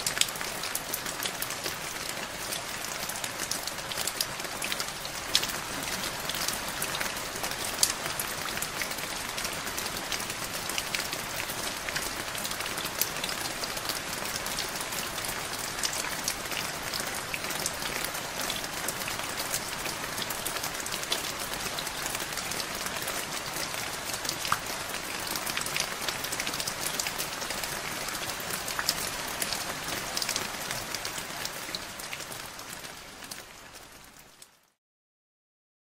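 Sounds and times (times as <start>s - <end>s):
steady rain: 0.0s - 34.8s.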